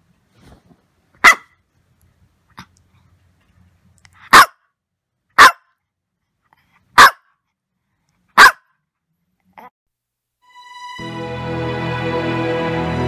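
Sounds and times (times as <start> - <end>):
small dog barking: 1.2 - 1.6, 4.2 - 4.7, 5.4 - 5.7, 6.9 - 7.4, 8.3 - 8.7.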